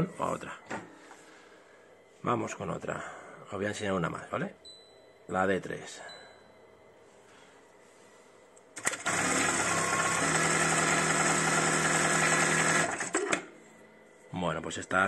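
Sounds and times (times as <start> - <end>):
sewing machine stitching: 8.8 - 13.4.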